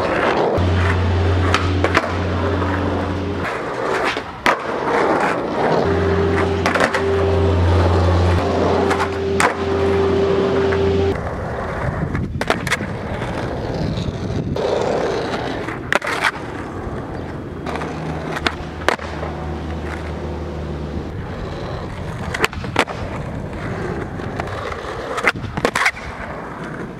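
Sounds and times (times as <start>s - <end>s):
skateboard wheels rolling on asphalt: 0.0s - 26.9s
skateboard wooden clacks: 12.0s - 20.2s, 21.9s - 26.9s.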